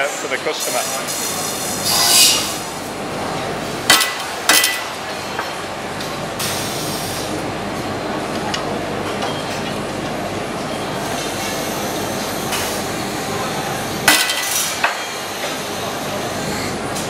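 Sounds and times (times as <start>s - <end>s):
factory machinery hum: 0.0s - 17.0s.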